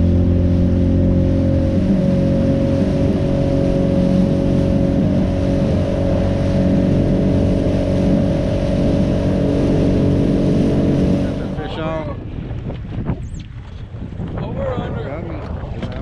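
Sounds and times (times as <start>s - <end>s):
boat motor running: 0.0s - 13.7s
wind and water rushing: 0.0s - 16.0s.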